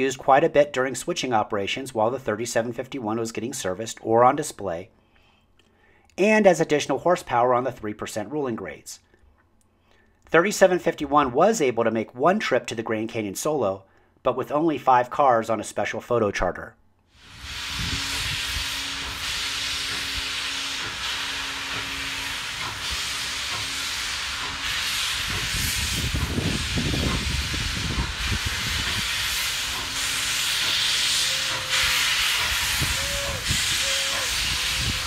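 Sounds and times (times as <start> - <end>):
steam locomotive hissing: 17.2 - 35.0.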